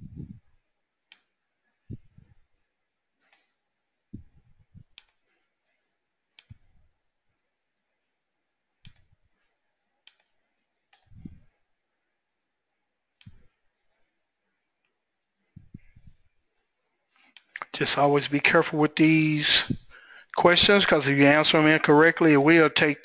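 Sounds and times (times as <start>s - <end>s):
computer mouse clicks: 8.8s - 9.1s.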